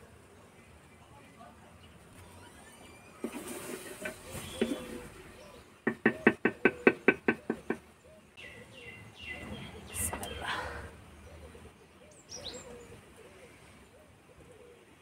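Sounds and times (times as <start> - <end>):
bird chirping: 1.8 - 14.8
ladle scraping clay pot: 3.2 - 5.2.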